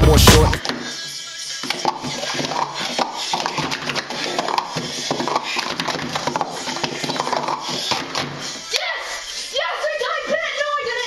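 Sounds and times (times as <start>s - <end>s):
plastic cups clacking: 1.6s - 8.6s.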